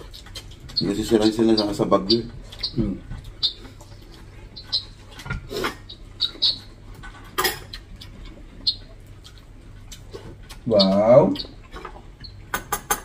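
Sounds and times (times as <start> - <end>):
mouth smacks and chewing: 0.0 - 1.0, 2.1 - 12.4
dishes and cutlery clinking: 7.0 - 7.8, 11.7 - 13.0.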